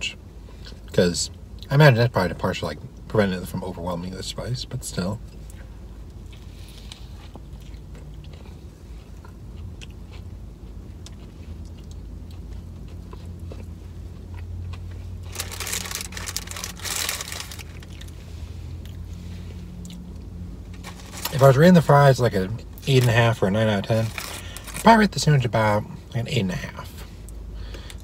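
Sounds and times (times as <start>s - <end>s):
crunchy chewing: 5.4s - 18.2s
loud crinkling: 15.2s - 18.2s, 20.7s - 21.5s, 22.8s - 24.9s.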